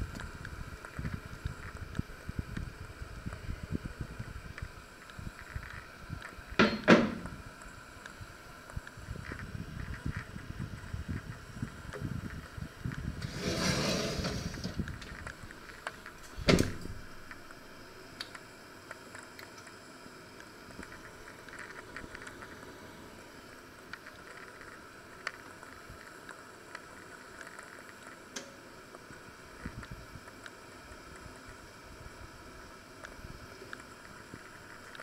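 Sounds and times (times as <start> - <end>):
oven door banging shut: 6.6 - 7.2, 16.4 - 17.0
oven rack scraping: 13.2 - 15.1.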